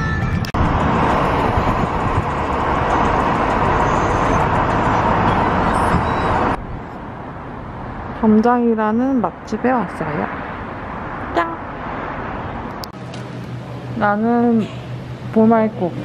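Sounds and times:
road noise: 0:00.0 - 0:16.0
wind rushing at car window: 0:00.3 - 0:08.4.

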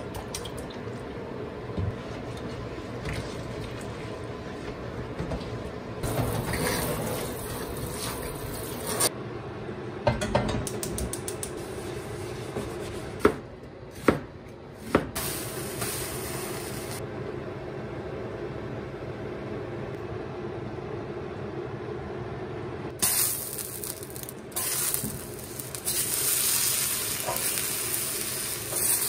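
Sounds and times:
wet griddle rubbed in a sink: 0:01.9 - 0:09.1
gas hiss: 0:15.2 - 0:17.0, 0:23.0 - 0:29.0
griddle clattering on a cooktop: 0:27.2 - 0:27.6.

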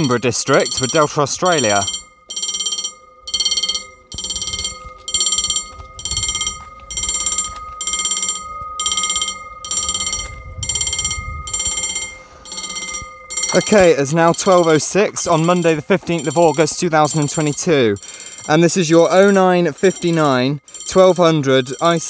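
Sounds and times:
mechanical level-crossing bell ringing: 0:00.0 - 0:22.0.

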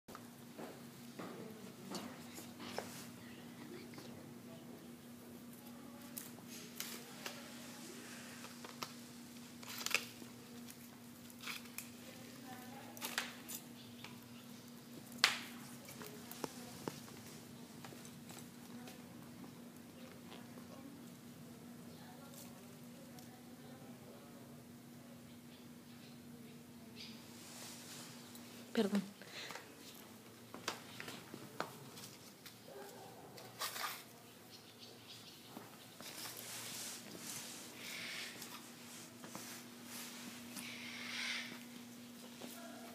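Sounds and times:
faint steady hum: 0:00.1 - 0:42.9
rabbit nibbling plants: 0:00.1 - 0:42.9
leaves rustling: 0:05.4 - 0:19.8, 0:27.0 - 0:30.0, 0:31.1 - 0:34.3, 0:35.9 - 0:42.9.

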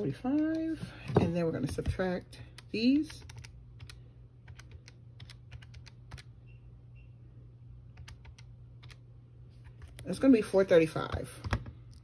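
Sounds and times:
calculator keys clicking: 0:00.2 - 0:00.8, 0:02.6 - 0:06.3, 0:08.0 - 0:09.0.

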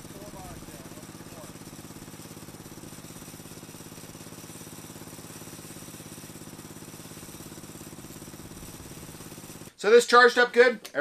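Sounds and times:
lawn tractor engine idling: 0:00.0 - 0:09.8.

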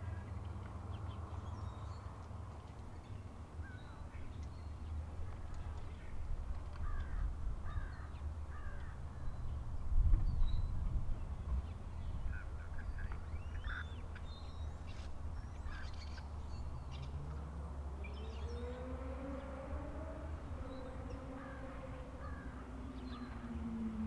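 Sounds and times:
rising and falling tone: 0:17.1 - 0:24.0.

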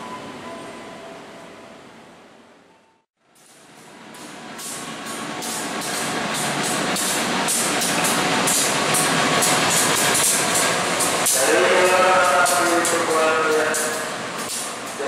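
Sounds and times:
diesel locomotive engine: 0:00.0 - 0:15.0
wheels clattering on rails: 0:03.3 - 0:15.0.

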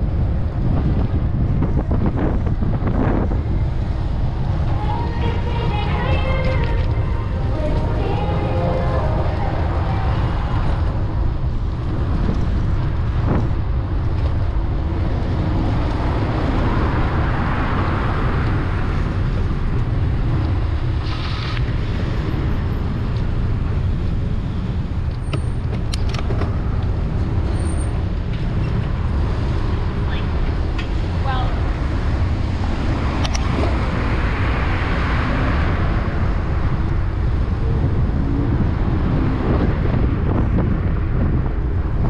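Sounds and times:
vehicle passing: 0:00.0 - 0:23.0
city street traffic: 0:00.0 - 0:42.0
wind rumble on microphone: 0:00.0 - 0:42.0.

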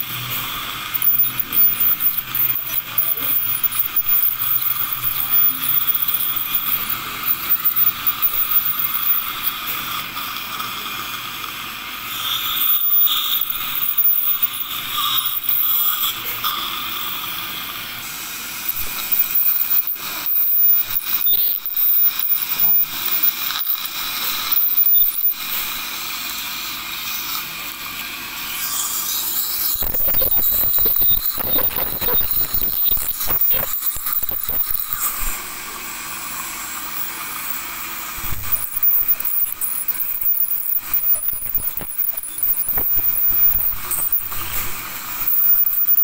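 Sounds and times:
dental scaler hiss and whine: 0:00.0 - 0:46.0
saliva ejector suction: 0:28.5 - 0:35.7.

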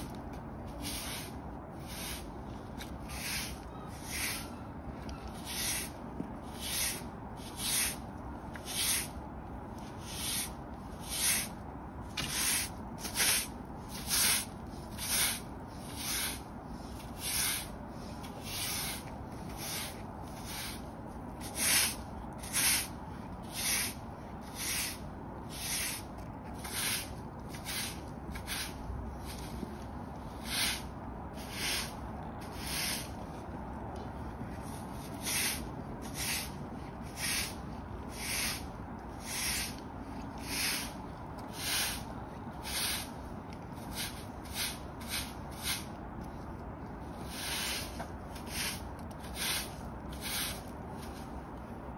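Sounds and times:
broom sweeping brick pavers: 0:00.0 - 0:51.9.

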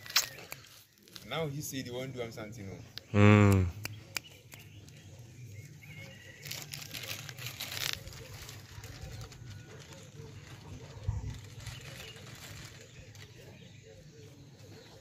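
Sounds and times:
rustling and crackling: 0:06.2 - 0:15.0.

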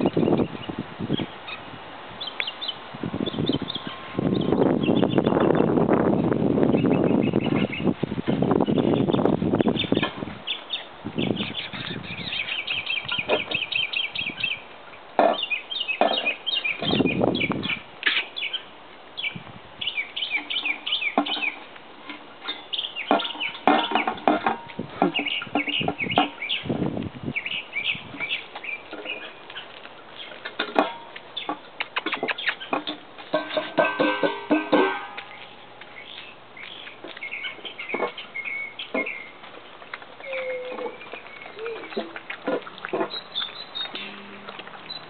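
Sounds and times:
birds chirping: 0:00.0 - 0:45.0
puppies eating from metal pan: 0:20.2 - 0:26.6, 0:28.2 - 0:35.8, 0:36.7 - 0:45.0.

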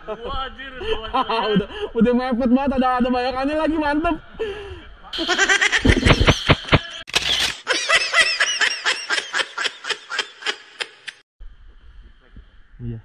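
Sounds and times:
person laughing hard: 0:05.2 - 0:06.8, 0:07.6 - 0:11.2.

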